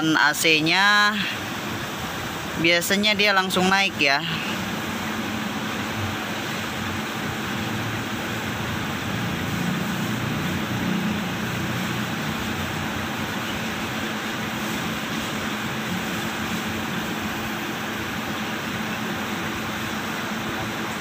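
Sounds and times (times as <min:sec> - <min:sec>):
air conditioning fan blowing: 0:00.0 - 0:21.0.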